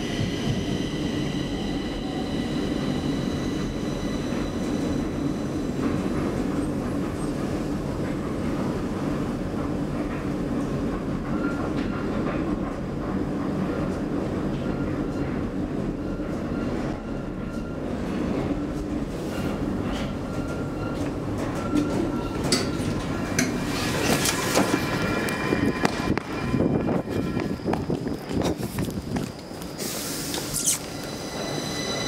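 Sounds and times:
wheels rumbling on rails: 17.6s - 29.8s.

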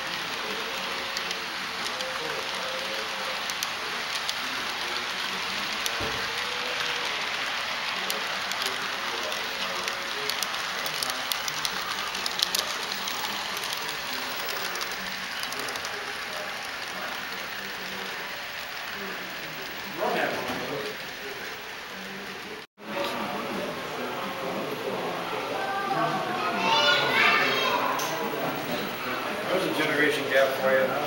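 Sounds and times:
model train rushing hiss: 0.0s - 22.6s.

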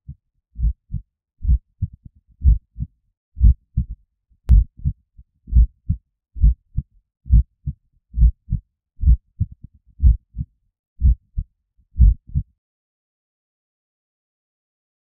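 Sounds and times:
heartbeat thumps: 0.6s - 3.9s, 4.5s - 11.4s, 12.0s - 12.4s.

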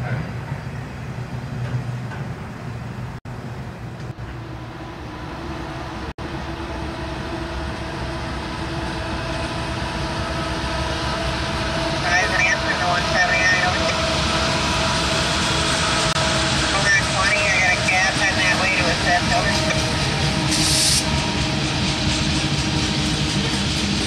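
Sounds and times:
diesel locomotive hum: 0.0s - 24.0s
train wheels rumbling on rails: 0.0s - 24.0s.

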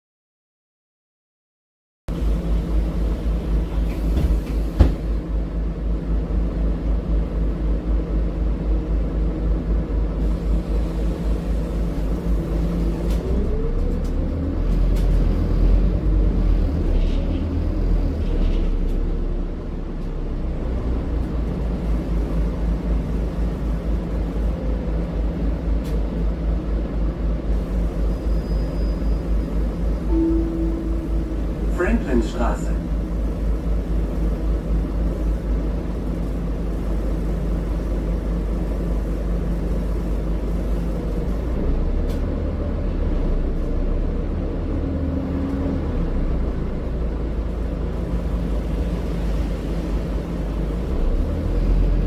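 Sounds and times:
bus engine low rumble: 2.1s - 52.0s
rising engine whine: 5.3s - 37.0s.

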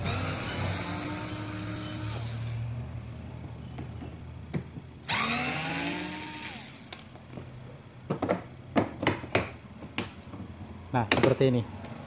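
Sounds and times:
electric screwdriver whirring: 0.0s - 2.5s, 5.0s - 6.9s.

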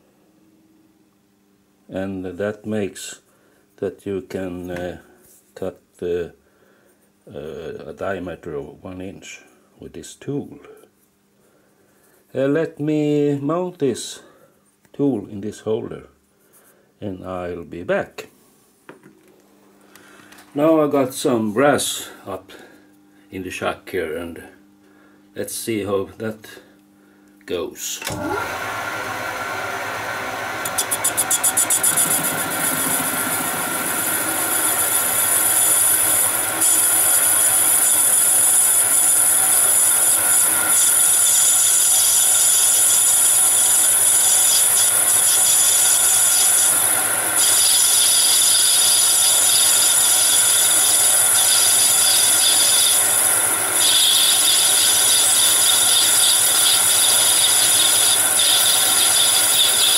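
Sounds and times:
metal lathe cutting brass: 30.2s - 59.9s.

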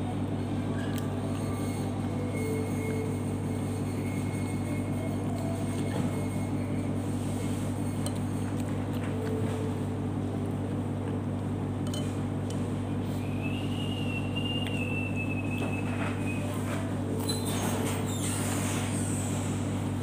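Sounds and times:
low machine hum: 0.0s - 20.0s
spoon clinking against ceramic bowl: 11.8s - 12.2s
high whistle-like tone: 13.0s - 16.6s.

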